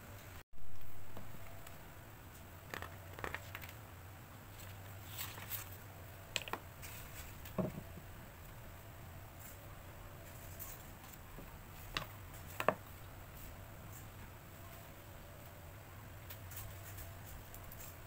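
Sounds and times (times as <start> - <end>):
paper rustling: 2.6 - 3.8, 4.5 - 5.8.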